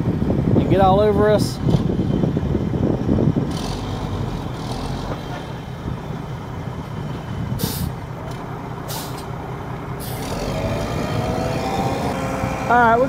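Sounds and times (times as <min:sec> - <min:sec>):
diesel truck engine running: 0:00.0 - 0:13.0
short hisses: 0:07.6 - 0:08.0, 0:08.9 - 0:09.3.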